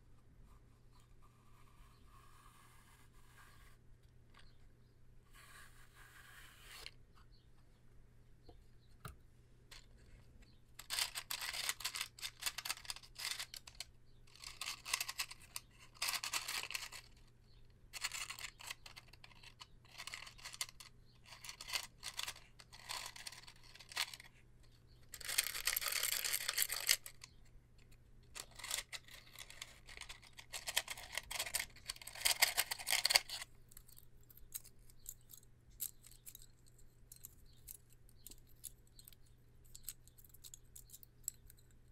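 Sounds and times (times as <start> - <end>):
wooden matches rattling in box: 10.8 - 17.2, 18.0 - 24.3, 25.0 - 27.4, 28.4 - 41.8.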